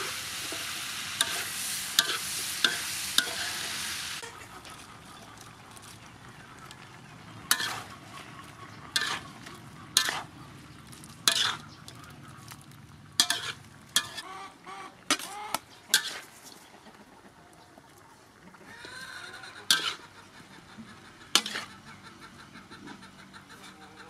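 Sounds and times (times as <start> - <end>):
food sizzling: 0.0 - 4.3, 7.5 - 7.9, 8.9 - 14.2
metal spatula scraping a wok: 0.0 - 4.4, 7.5 - 12.6, 13.2 - 14.3, 15.1 - 16.4, 19.6 - 20.1, 21.3 - 21.8.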